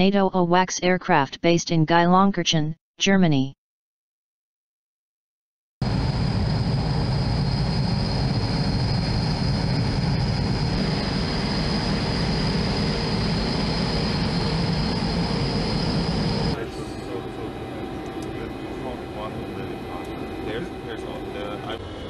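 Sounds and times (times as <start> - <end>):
deep aircraft cabin drone: 5.8 - 22.0
thin high whine: 10.7 - 21.8.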